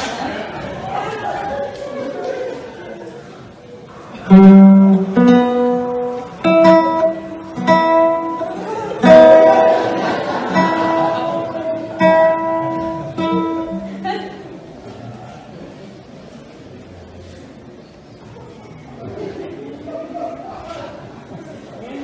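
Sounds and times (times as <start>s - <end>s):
acoustic guitar strummed slowly: 4.1s - 14.6s.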